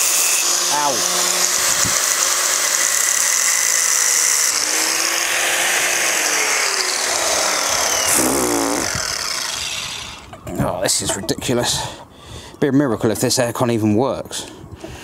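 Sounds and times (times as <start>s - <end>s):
angle grinder grinding metal: 0.0s - 10.3s.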